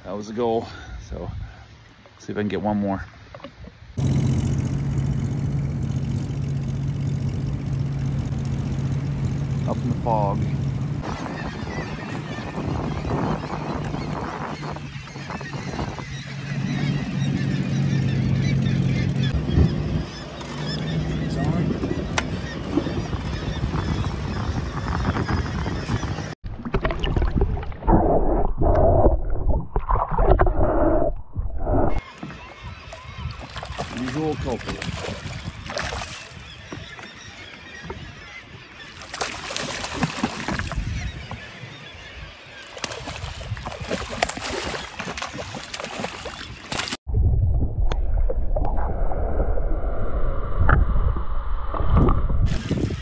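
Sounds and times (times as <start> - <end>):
water splashing and churning: 3.2 - 19.4, 20.0 - 30.9, 32.0 - 47.0, 51.9 - 53.0
wind on microphone: 10.0 - 17.6, 19.2 - 36.8, 39.9 - 53.0
muffled underwater rumble: 21.0 - 32.0, 47.1 - 53.0
muffled underwater water sloshing: 26.4 - 49.6.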